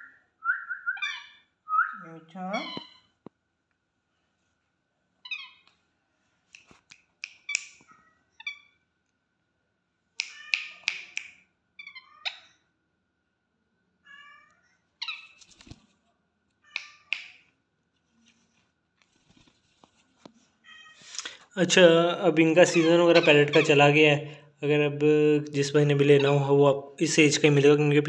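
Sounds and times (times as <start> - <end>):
parakeet raspy begging calls: 1.0 - 1.4, 2.5 - 3.0, 5.3 - 5.6, 22.6 - 24.1.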